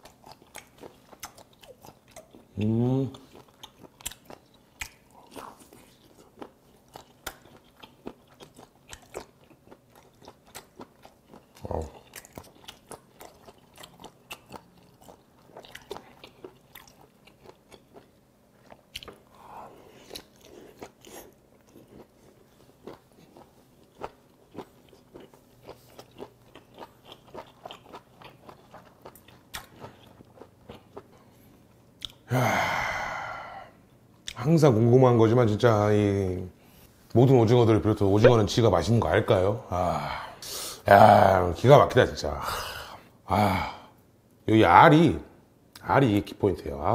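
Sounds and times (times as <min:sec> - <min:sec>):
person chewing: 0:00.0 - 0:34.4
breathy exhale: 0:32.3 - 0:33.8.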